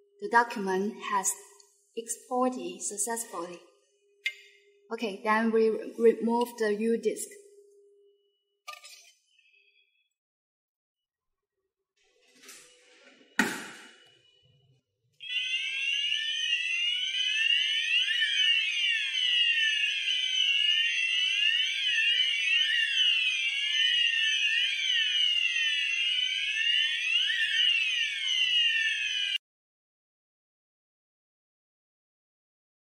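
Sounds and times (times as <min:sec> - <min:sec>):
fire alarm sounders wailing: 0:15.2 - 0:29.4.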